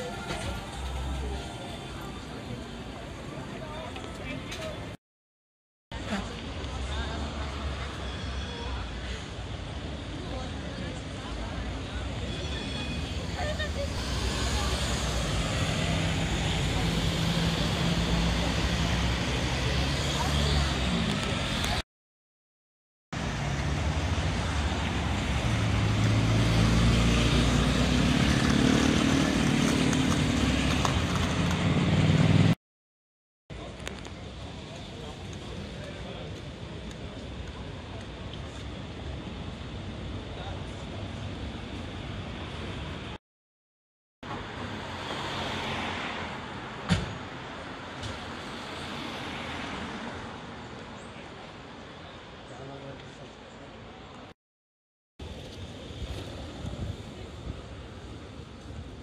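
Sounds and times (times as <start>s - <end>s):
city street traffic: 0.0s - 5.0s, 5.9s - 21.8s, 23.1s - 32.6s, 33.5s - 43.2s, 44.2s - 54.4s, 55.2s - 59.0s
cars and motorbikes driving past: 13.0s - 21.8s, 23.2s - 32.6s, 44.3s - 51.3s
car passing: 44.6s - 46.5s.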